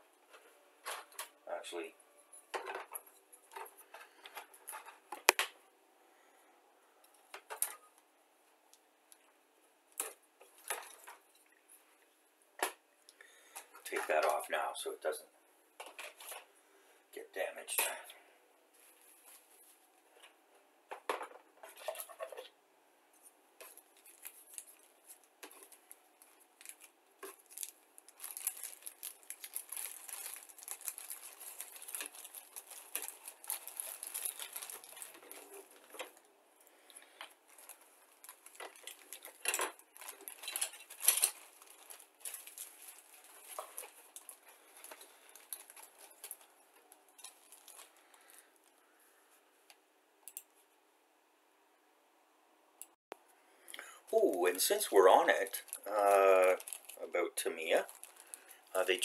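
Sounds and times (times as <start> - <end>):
plastic bag crinkling: 23.6 - 48.8, 54.1 - 59.0.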